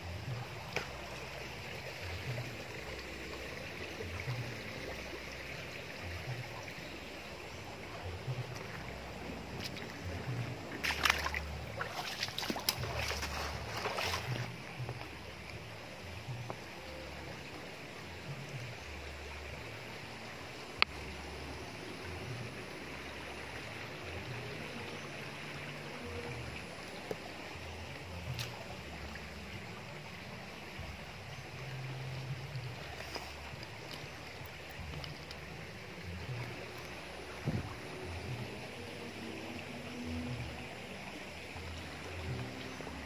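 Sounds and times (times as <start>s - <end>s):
creek water running over rocks: 0.0s - 43.0s
low rumble on microphone: 27.8s - 43.0s.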